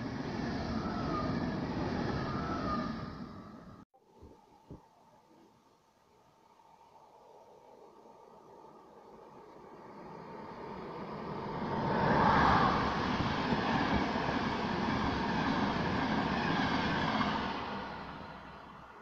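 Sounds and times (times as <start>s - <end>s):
passenger train passing at speed: 0.0s - 3.8s, 7.0s - 19.0s.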